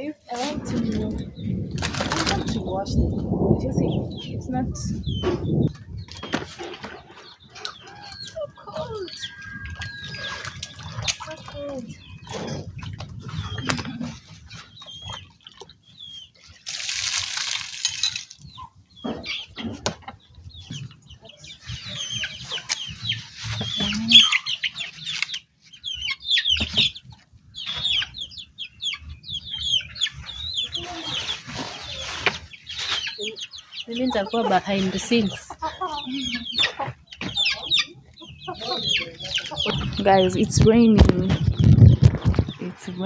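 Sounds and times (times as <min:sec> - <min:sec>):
chickens clucking: 0:00.0 - 0:16.3, 0:18.0 - 0:43.0.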